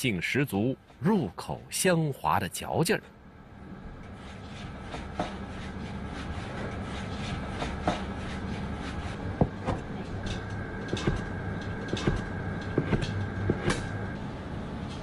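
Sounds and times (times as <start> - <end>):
low hum: 3.1 - 15.0.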